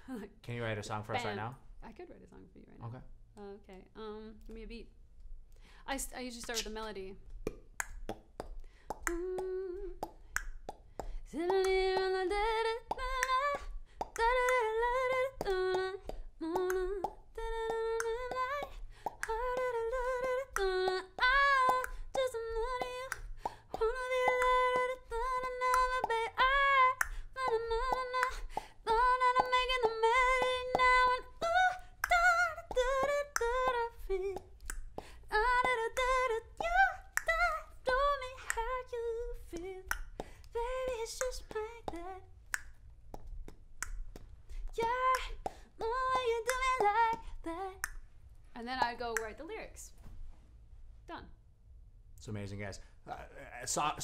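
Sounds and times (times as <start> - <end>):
woman singing wordless melody: 1.1 - 1.4, 3.3 - 4.9, 9.0 - 10.3, 11.2 - 42.4, 44.6 - 47.9
sharp clicks keeping a beat: 3.3 - 49.6.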